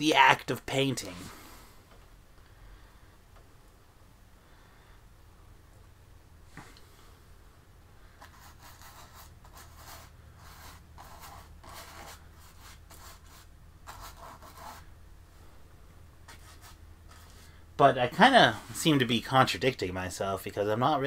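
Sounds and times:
paintbrush strokes on canvas: 8.2s - 14.8s, 16.3s - 17.6s.

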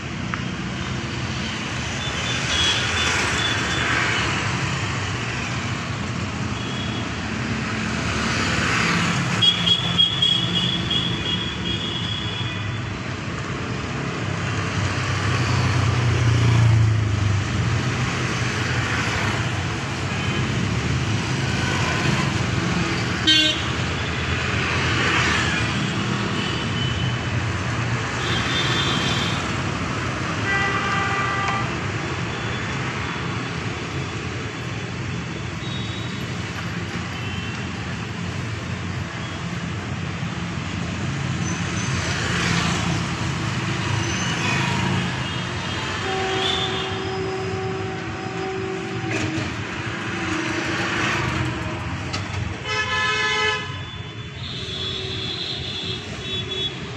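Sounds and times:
street traffic passing: 0.0s - 56.9s
vehicle horn toots: 45.9s - 49.5s.

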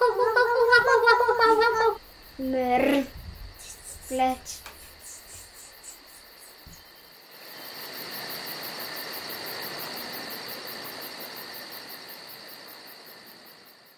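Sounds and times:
insect high trill: 0.0s - 10.2s
insect quick chirping: 0.0s - 13.9s
steady hiss: 0.0s - 13.9s.

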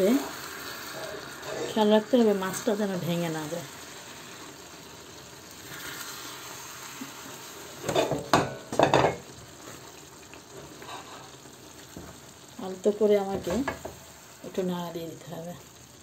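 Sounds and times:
fish sizzling in a pan: 0.0s - 16.0s
wooden spatula stirring in pan: 0.2s - 3.1s, 5.5s - 12.3s.

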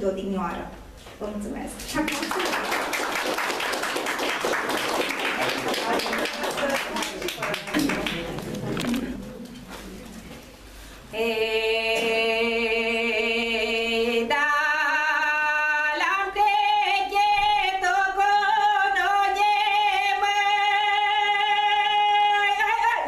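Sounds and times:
woman singing unaccompanied: 11.1s - 23.0s.

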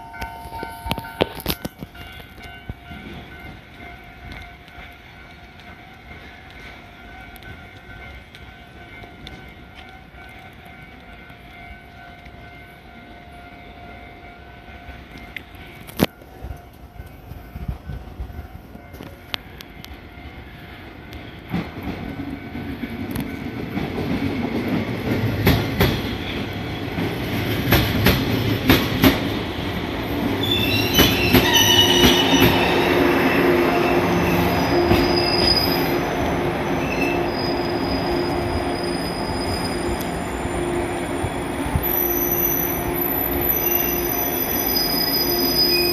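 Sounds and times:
train wheels clacking over rail joints: 21.2s - 29.6s, 30.4s - 33.0s
train brakes squealing: 30.4s - 45.9s.

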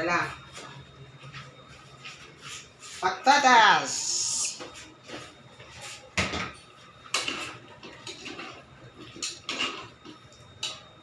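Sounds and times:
spoon stirring in a metal pot: 7.1s - 10.9s.

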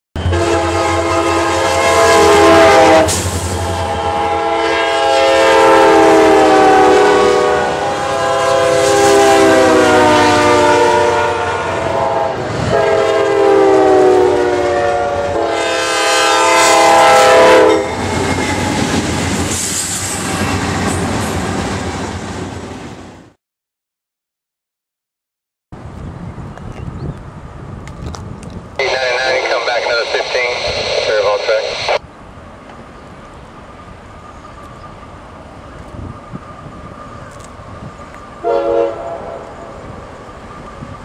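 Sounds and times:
locomotive air horn blasts: 0.2s - 17.9s, 38.4s - 39.6s
passing train rushing: 0.2s - 23.3s, 27.2s - 41.0s.

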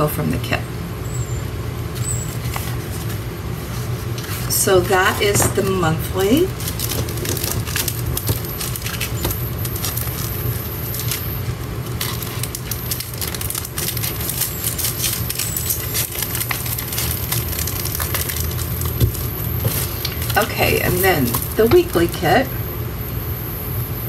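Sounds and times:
steady low hum: 0.0s - 24.0s
plastic sleeves crinkling: 1.9s - 22.2s.

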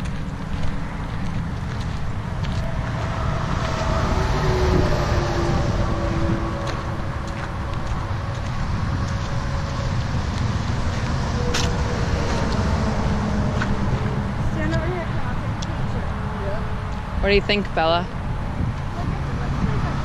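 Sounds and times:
footsteps on gravel: 0.0s - 15.0s
wind rumbling on microphone: 0.0s - 20.0s.

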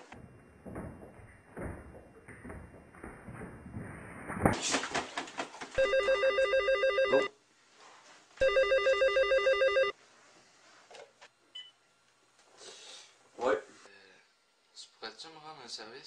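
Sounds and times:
knocks and thumps: 0.2s - 5.6s
telephone ringing: 5.8s - 7.3s, 8.4s - 10.0s.

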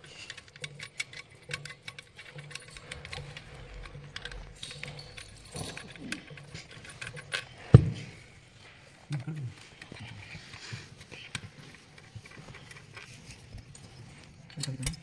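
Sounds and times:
metal spanner clicking on bolt: 0.0s - 7.6s.

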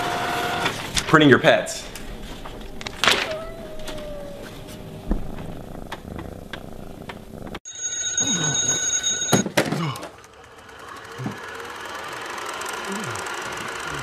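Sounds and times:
alarm clock bells ringing: 7.7s - 9.5s.

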